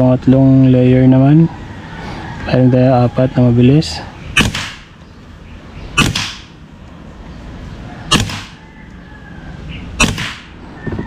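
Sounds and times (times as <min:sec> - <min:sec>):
air rifle shots: 0:04.3 - 0:05.0, 0:05.9 - 0:06.6, 0:08.1 - 0:08.6, 0:09.9 - 0:10.6.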